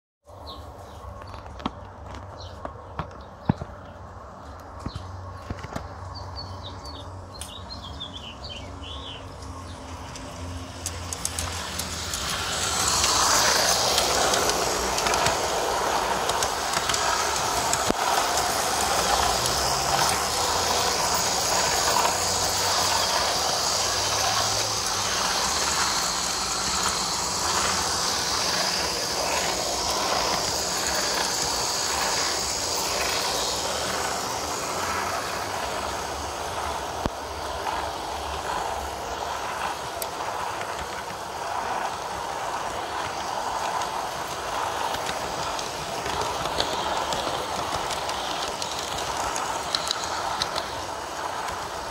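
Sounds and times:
birds chirping: 0.3 - 10.6
model train running on track: 0.3 - 51.9.

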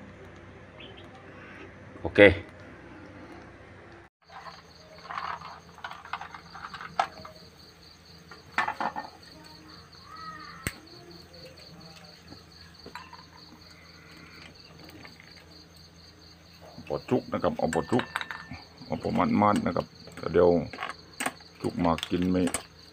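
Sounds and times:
crickets trilling: 4.2 - 22.9
shells clinking in metal wok: 17.7 - 18.7.

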